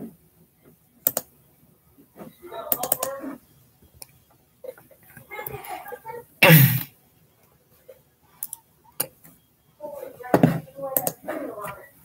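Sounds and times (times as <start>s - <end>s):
person clearing throat: 6.4s - 6.9s.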